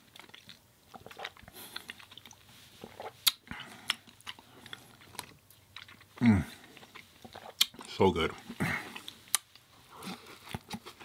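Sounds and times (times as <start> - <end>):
close chewing: 0.0 - 11.0
wet mouth clicks: 0.3 - 6.1, 6.9 - 7.9.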